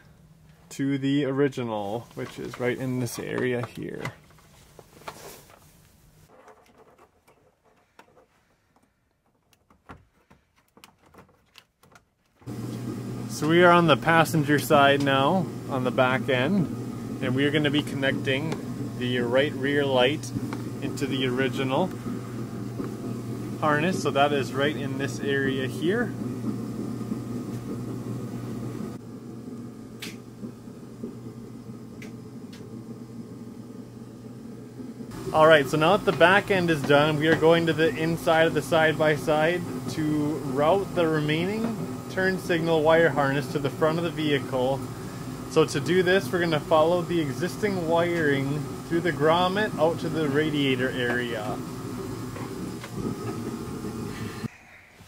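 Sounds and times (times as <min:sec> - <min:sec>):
steady low hum: 0:12.4 - 0:55.0.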